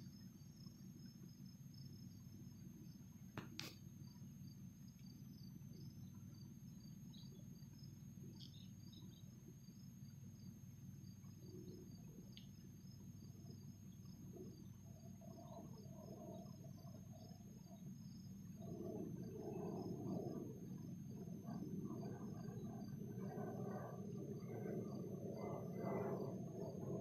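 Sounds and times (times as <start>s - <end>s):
faint low hum: 0.0s - 27.0s
insects chirping: 0.0s - 27.0s.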